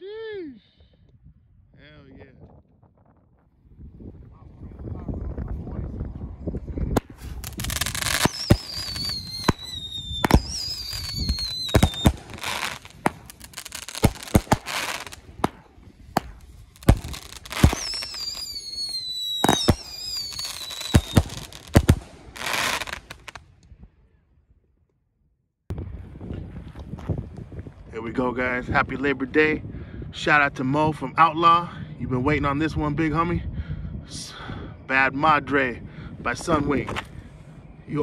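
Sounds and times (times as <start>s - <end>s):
firework launches hissing: 7.0s - 15.6s, 16.2s - 23.4s
firework bangs: 7.0s - 23.4s
firework whistles falling in pitch: 7.2s - 15.2s, 16.8s - 23.4s.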